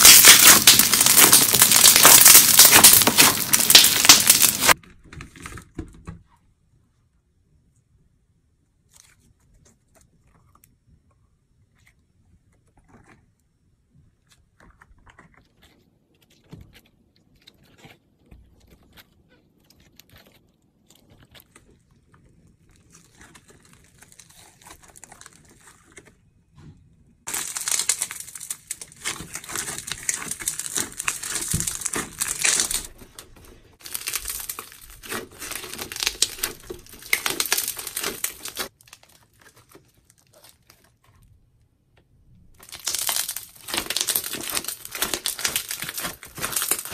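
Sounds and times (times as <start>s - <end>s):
slime crackling and popping: 0.0s - 4.8s, 14.7s - 26.2s, 27.2s - 41.1s, 42.5s - 46.9s.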